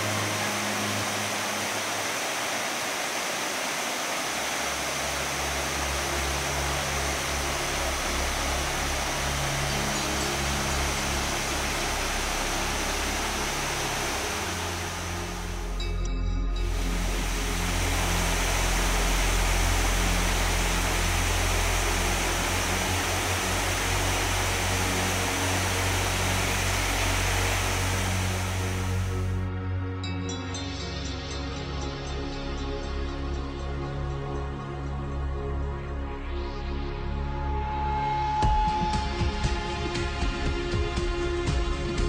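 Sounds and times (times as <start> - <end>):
waterfall rushing: 0.0 - 15.8, 16.6 - 29.4
low pulsing rumble: 5.3 - 29.6.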